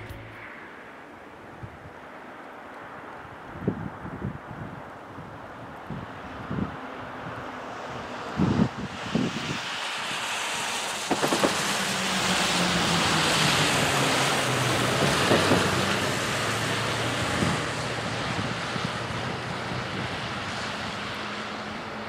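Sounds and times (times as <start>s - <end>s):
diesel locomotive engine drone: 0.0s - 1.6s, 7.0s - 22.0s
wind rushing over microphone: 3.2s - 22.0s.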